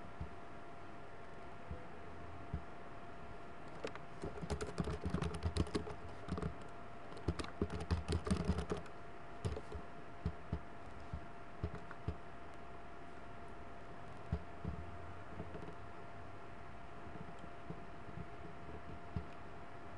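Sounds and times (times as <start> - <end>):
faint steady hum: 0.0 - 19.9
typing on computer keyboard: 3.7 - 9.8, 11.6 - 12.2.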